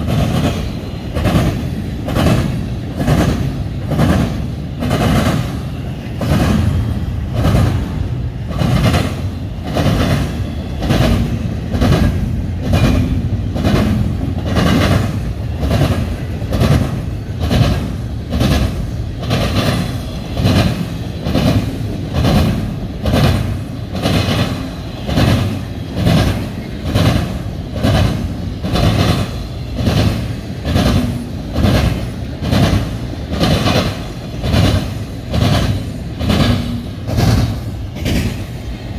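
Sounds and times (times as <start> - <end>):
low train rumble: 0.0 - 38.9
train wheels clacking over rail joints: 0.0 - 38.9.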